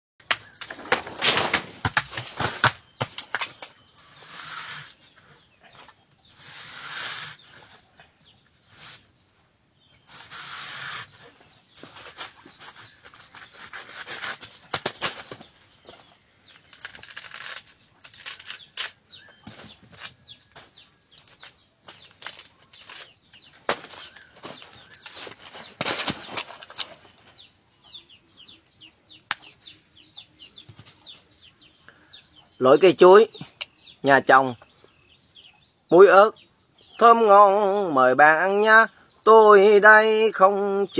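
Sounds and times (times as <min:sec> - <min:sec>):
fibrous sheaths tearing and crackling: 0:00.3 - 0:07.6, 0:16.4 - 0:20.2, 0:21.2 - 0:27.0.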